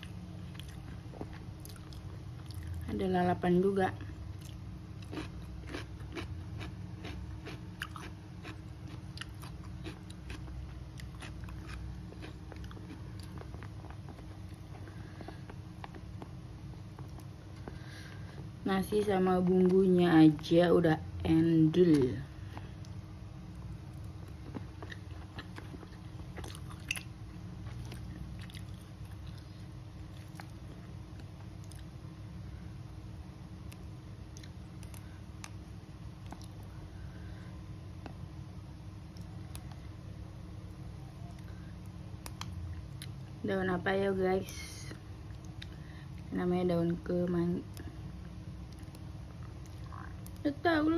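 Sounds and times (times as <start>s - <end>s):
chewing with wet mouth clicks: 0.0s - 2.9s, 4.4s - 17.8s, 23.9s - 31.9s, 33.7s - 35.6s, 36.2s - 36.7s, 42.2s - 43.4s, 45.3s - 46.3s, 48.6s - 50.4s
steady low hum: 0.0s - 50.9s.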